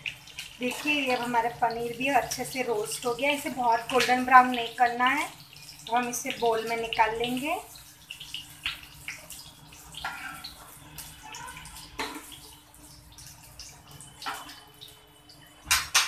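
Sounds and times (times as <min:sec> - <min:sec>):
hot oil sizzling: 0:00.0 - 0:16.0
steel spoon scraping frying pan: 0:10.0 - 0:10.8.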